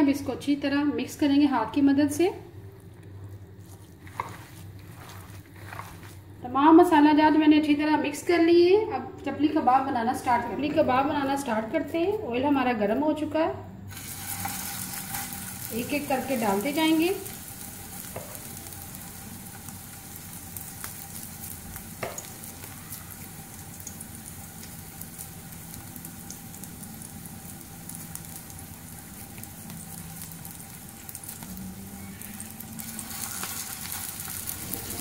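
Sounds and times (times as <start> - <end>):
patties sizzling in oil: 2.1 - 6.4, 13.9 - 35.0.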